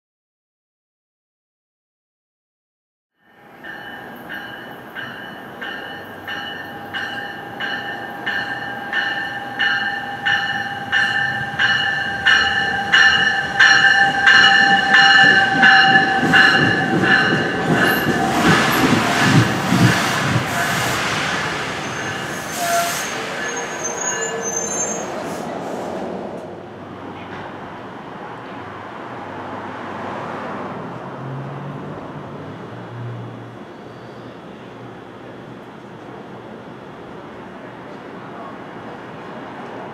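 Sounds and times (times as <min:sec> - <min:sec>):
train bell ringing: 0:03.2 - 0:20.0, 0:21.9 - 0:25.1
train rumble: 0:03.4 - 0:39.9
wheel and brake squeal: 0:21.8 - 0:25.8, 0:33.6 - 0:34.6.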